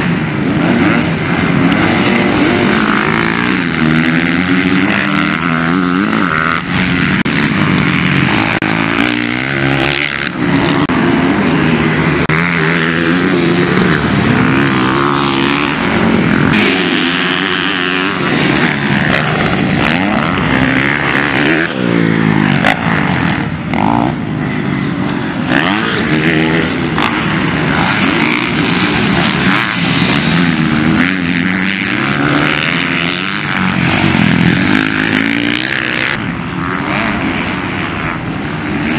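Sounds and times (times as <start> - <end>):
motocross bikes revving: 0.0 - 38.9.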